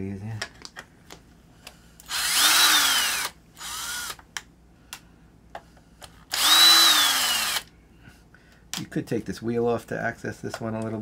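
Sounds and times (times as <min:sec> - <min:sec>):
cordless drill motor whine: 0:02.0 - 0:04.2, 0:06.3 - 0:07.7.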